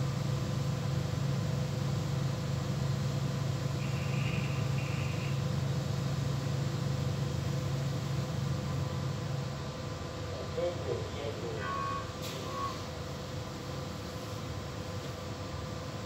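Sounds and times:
low machinery hum: 0.0 - 16.0
short electronic beeps: 11.6 - 12.9.

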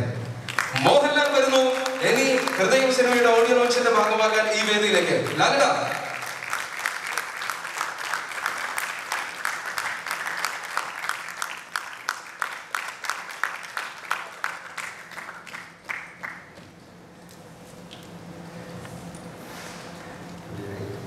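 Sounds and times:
audience applauding: 0.4 - 16.6.

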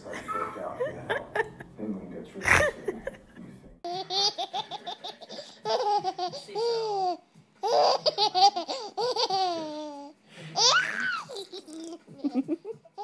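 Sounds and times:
baby laughing: 2.4 - 3.2, 3.9 - 13.0.

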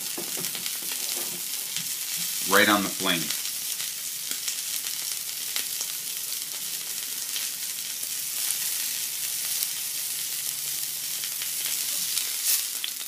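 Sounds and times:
steak sizzling in a skillet: 0.0 - 13.0.

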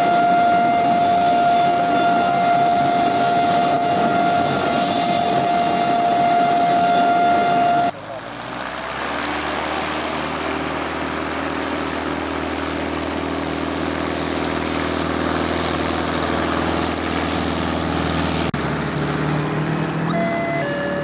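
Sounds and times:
light aircraft engine and propeller: 0.0 - 21.0
electronic melody: 20.1 - 21.0.

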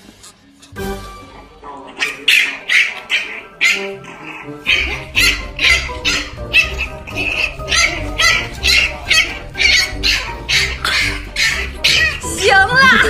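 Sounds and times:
puppy barking and yapping: 2.0 - 12.3.

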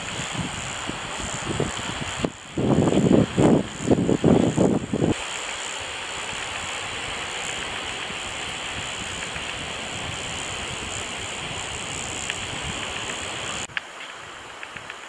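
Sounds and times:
steady outdoor rushing noise: 0.0 - 15.0.

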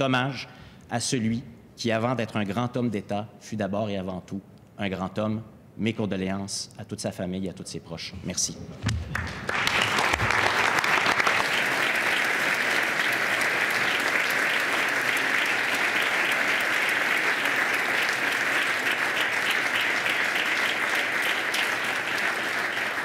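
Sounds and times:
crowd clapping: 8.9 - 23.0.

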